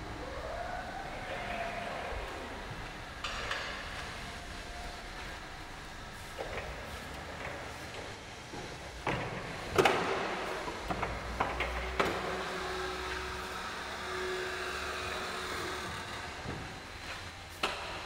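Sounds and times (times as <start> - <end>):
electric motor humming: 11.8 - 17.6.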